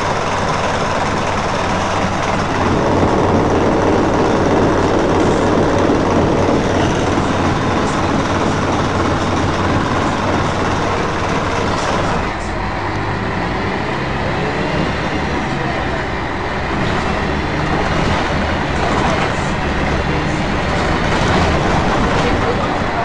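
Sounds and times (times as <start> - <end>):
bus diesel engine rumble: 0.0 - 23.0
road noise: 0.0 - 23.0.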